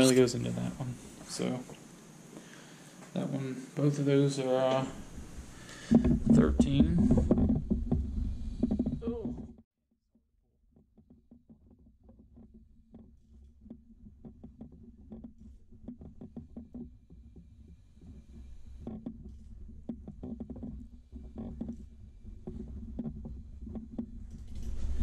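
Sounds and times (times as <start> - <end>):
low hum: 4.8 - 9.6, 12.2 - 25.0.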